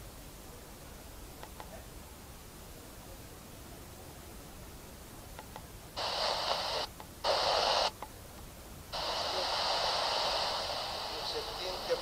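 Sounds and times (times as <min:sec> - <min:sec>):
tv static hiss: 0:00.0 - 0:12.0.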